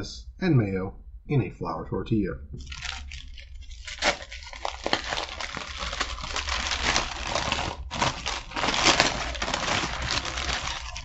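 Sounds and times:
paper wrapper crinkling: 2.6 - 11.0.

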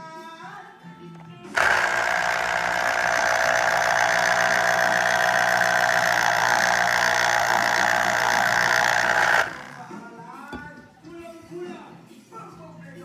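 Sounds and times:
juicer motor running: 1.2 - 9.9.

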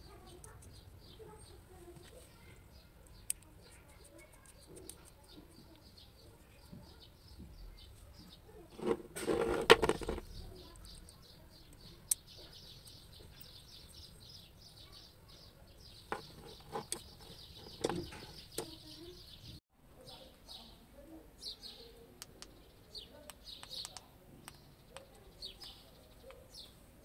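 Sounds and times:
small birds chirping: 0.0 - 27.0
handling noise: 8.7 - 10.4, 16.1 - 18.8.

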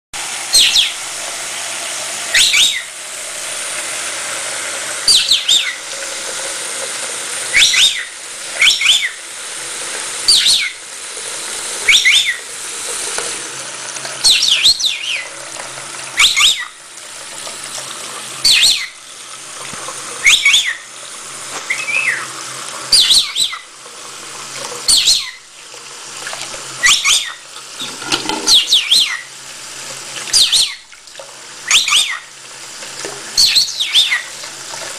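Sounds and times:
parrot chirping: 0.5 - 1.0, 2.3 - 3.0, 5.0 - 5.9, 7.4 - 9.3, 10.2 - 10.9, 11.8 - 12.5, 14.2 - 15.3, 16.2 - 16.8, 18.4 - 19.0, 20.2 - 21.0, 21.6 - 23.7, 24.9 - 25.5, 26.8 - 27.4, 28.5 - 29.3, 30.3 - 30.8, 31.6 - 32.3, 33.4 - 34.4
tap running into sink: 12.9 - 14.6, 19.6 - 20.4, 27.6 - 28.8.

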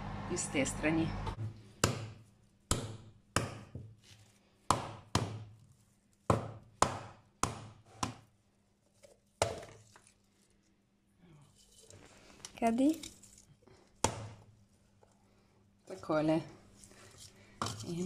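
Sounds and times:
coconut being struck: 1.8 - 3.9, 4.7 - 5.5, 6.3 - 8.2, 14.0 - 14.4.

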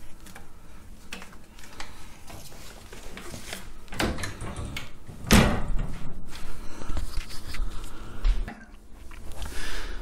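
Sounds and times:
wooden cabinet door clicks and knocks: 4.0 - 6.0.

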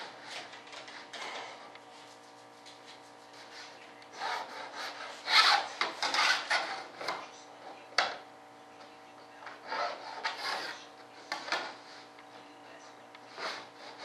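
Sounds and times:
hand tool scraping a panel: 3.5 - 7.2, 9.6 - 11.8, 13.3 - 14.0.

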